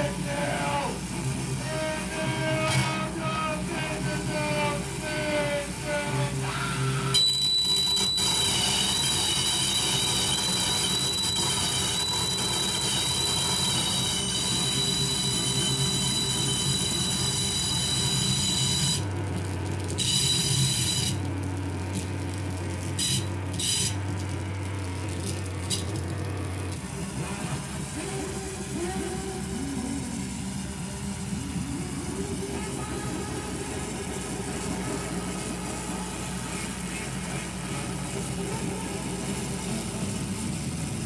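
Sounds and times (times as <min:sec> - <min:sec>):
hiss: 0:00.0 - 0:19.0
high-pitched electronic squeal: 0:00.0 - 0:19.1, 0:20.0 - 0:21.2, 0:22.9 - 0:24.0
low drone: 0:21.7 - 0:41.0.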